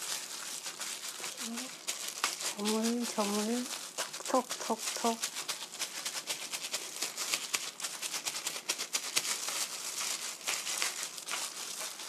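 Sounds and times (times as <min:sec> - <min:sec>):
plastic glove crinkling: 0:00.0 - 0:12.0.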